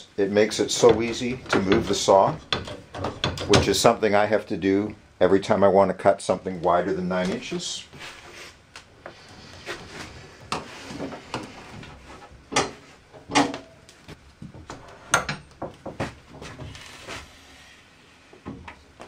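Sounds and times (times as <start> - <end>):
sharp clunks and knocks: 0.8 - 3.9.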